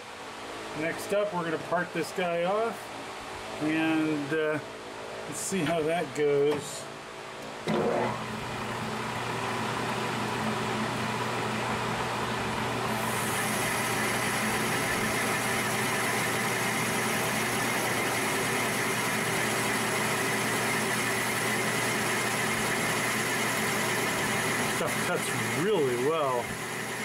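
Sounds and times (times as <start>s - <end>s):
metal lathe humming: 7.7s - 27.0s.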